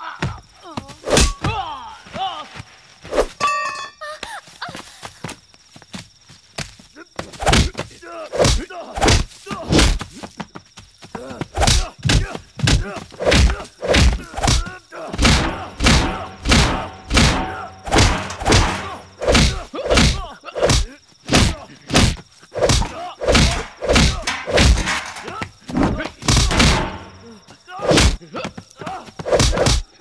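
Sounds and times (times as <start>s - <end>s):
punch impacts: 15.2s - 28.2s
grunts of effort: 22.7s - 24.3s.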